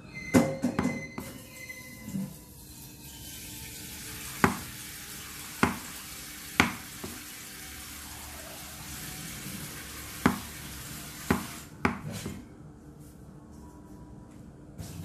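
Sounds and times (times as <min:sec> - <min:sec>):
knife knocking on cutting board: 0:04.4 - 0:04.7, 0:05.6 - 0:05.8, 0:06.6 - 0:07.2.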